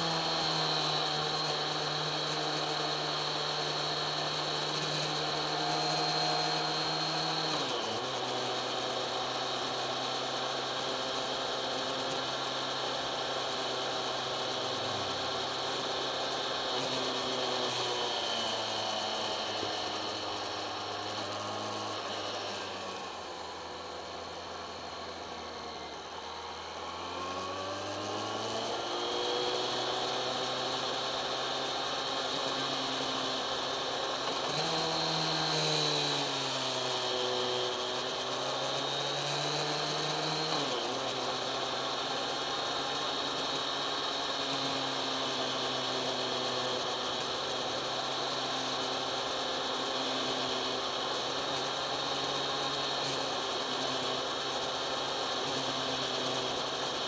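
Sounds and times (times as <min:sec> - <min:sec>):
motorcycle engine revving: 0:00.0 - 0:24.9, 0:26.0 - 0:57.0.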